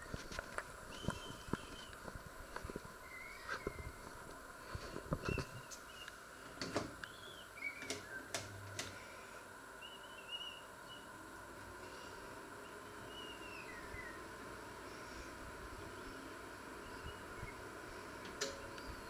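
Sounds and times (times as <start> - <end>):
faint steady hum: 0.0 - 19.0
high bird chirps: 12.6 - 14.2.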